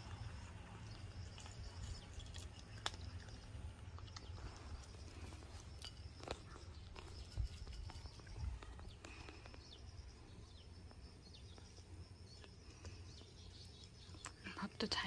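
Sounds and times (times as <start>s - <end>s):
low steady rumble: 0.0s - 15.0s
cat crunching dry kibble: 1.2s - 8.4s.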